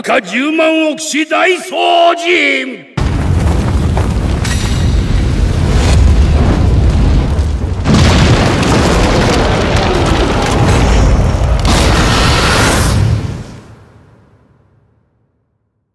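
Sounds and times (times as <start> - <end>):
explosive rumble: 3.0 - 14.0.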